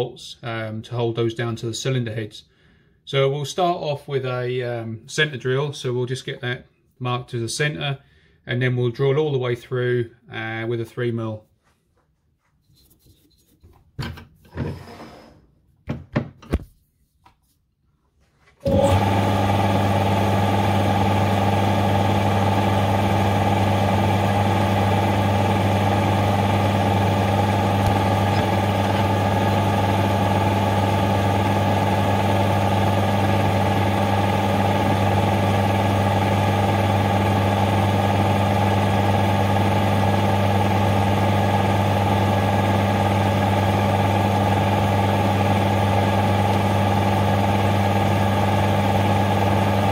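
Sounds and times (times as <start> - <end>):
metal lathe humming and whining: 18.7 - 49.9.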